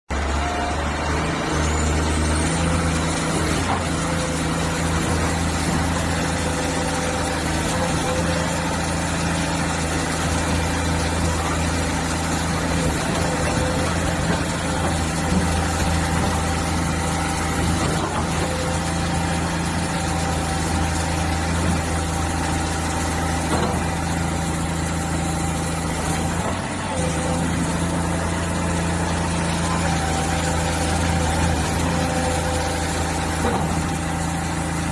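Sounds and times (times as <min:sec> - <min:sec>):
excavator diesel engine running: 0:00.1 - 0:34.9.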